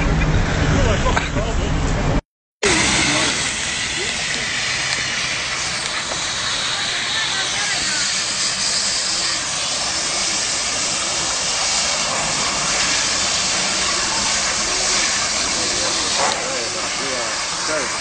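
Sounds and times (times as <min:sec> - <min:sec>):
hose spray hissing: 0:02.6 - 0:18.0.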